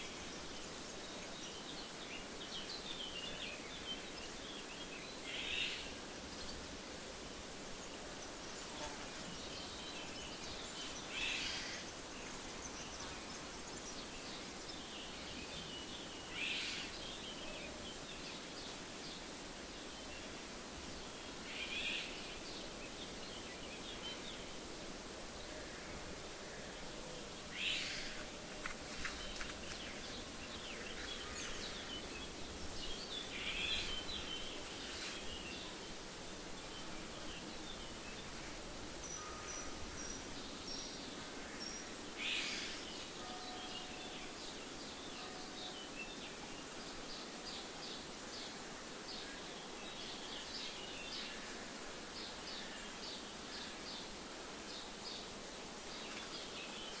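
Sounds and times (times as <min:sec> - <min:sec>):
steady hiss: 0:00.0 - 0:57.0
flies buzzing: 0:05.6 - 0:14.7, 0:20.4 - 0:44.8
birds chirping and singing: 0:27.5 - 0:35.9.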